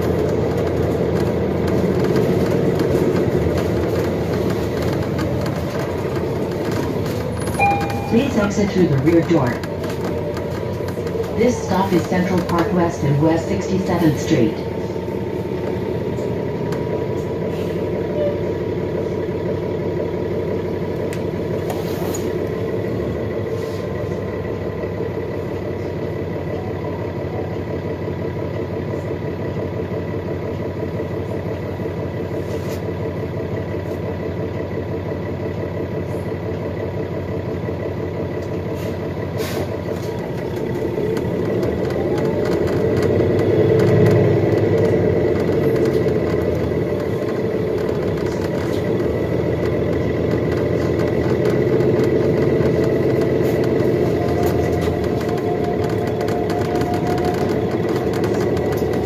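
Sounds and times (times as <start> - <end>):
bus accelerating with rising whine: 0.0 - 59.0
bus engine idling: 0.0 - 59.0.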